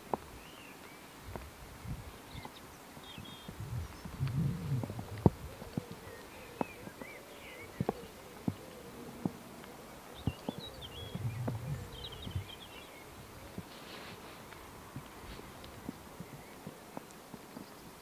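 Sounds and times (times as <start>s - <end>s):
faint bird chirps: 1.8s - 14.6s, 15.4s - 16.8s.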